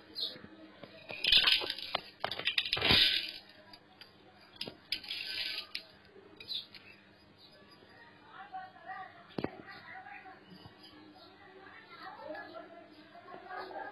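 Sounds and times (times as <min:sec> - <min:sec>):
lentils pattering into a metal pot: 0:01.0 - 0:03.8, 0:04.6 - 0:06.6.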